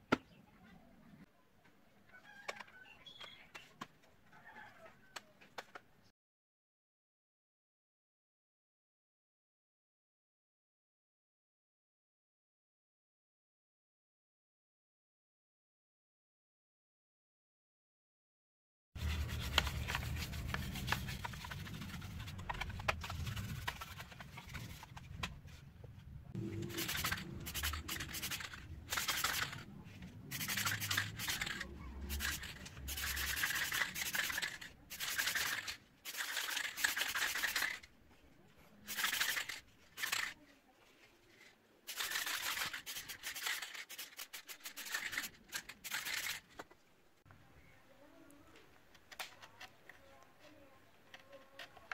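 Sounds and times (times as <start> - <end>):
wax scraping on wood: 19.0 - 25.1, 26.4 - 37.8.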